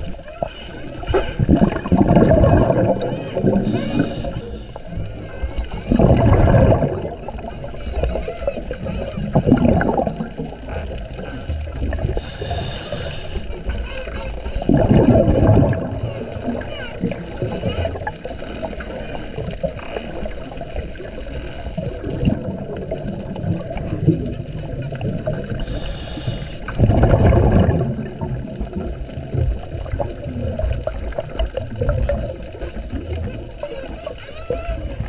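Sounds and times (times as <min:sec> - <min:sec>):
exhaled bubbles gushing: 0:00.0 - 0:25.8, 0:26.6 - 0:35.0
low underwater rumble: 0:00.0 - 0:35.0
dolphin whistles: 0:00.3 - 0:06.4, 0:11.3 - 0:19.2, 0:31.8 - 0:35.0
scuba regulator hissing: 0:00.4 - 0:06.8, 0:12.0 - 0:18.4, 0:25.6 - 0:26.7.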